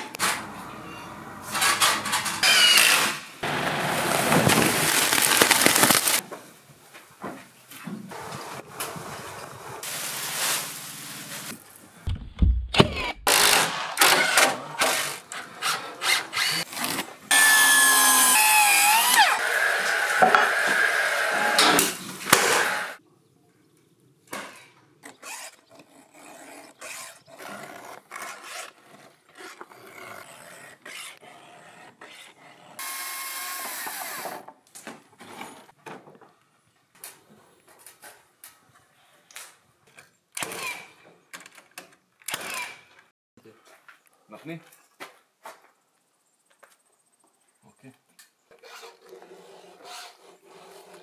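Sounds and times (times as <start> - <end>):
low thud: 12.1 - 13.2.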